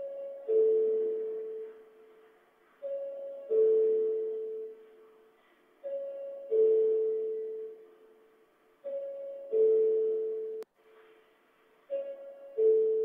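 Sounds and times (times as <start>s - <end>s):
two-tone electronic chime: 0.0s - 1.9s, 2.8s - 4.8s, 5.8s - 7.8s, 8.8s - 10.6s, 11.9s - 13.0s.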